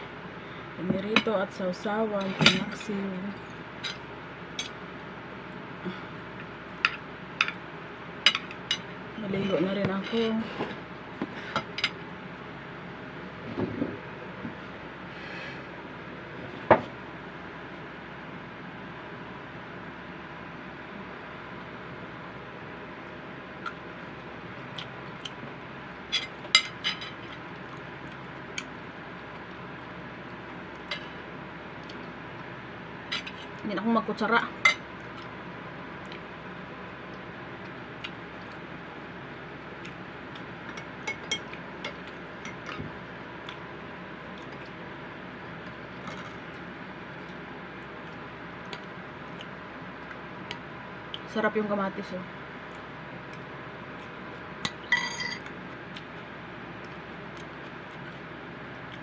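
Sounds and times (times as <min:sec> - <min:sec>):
tableware clinking: 0:54.9 - 0:55.5.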